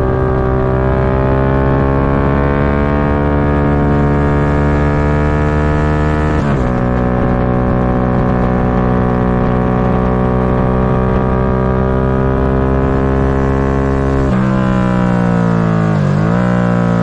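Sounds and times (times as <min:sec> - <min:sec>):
wind rush: 0:00.0 - 0:16.0
motorcycle engine accelerating: 0:00.0 - 0:17.0.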